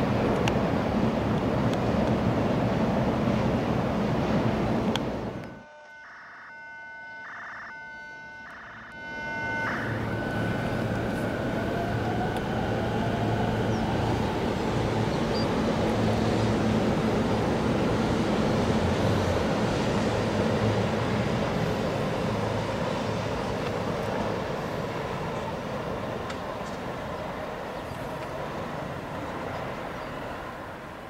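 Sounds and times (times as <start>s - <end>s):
train running rumble: 0.0s - 5.6s, 8.9s - 31.0s
train traction motor whine: 5.0s - 27.7s
electronic tone pulses: 5.4s - 12.4s.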